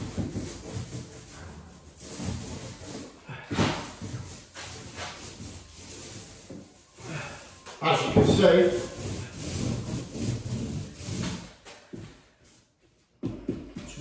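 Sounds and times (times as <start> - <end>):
paint roller swishing: 0.0 - 13.1.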